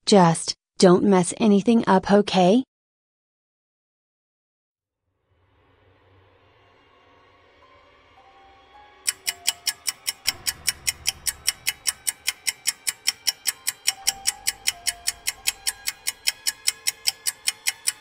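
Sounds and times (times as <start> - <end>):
soft background music: 5.6 - 18.0
steady mechanical ticking: 9.0 - 18.0.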